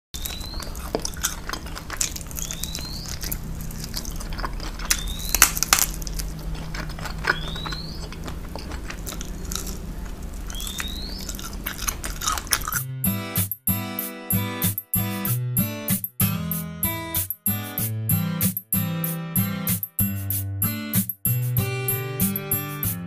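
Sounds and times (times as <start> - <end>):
crunchy chewing: 0.2 - 13.5
short rising chirp: 10.5 - 11.3.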